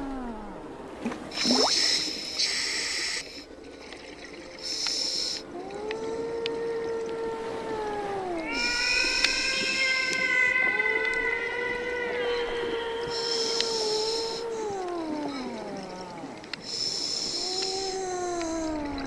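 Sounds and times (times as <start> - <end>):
whale song: 0.0 - 3.6, 4.3 - 19.0
hiss bursts: 4.6 - 5.4, 16.7 - 17.9.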